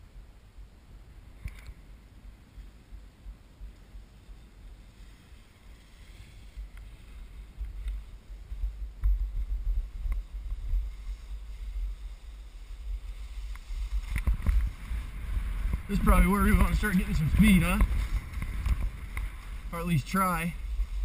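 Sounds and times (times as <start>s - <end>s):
faint clicks: 1.4s - 1.8s
wind buffeting microphone: 5.4s - 21.0s.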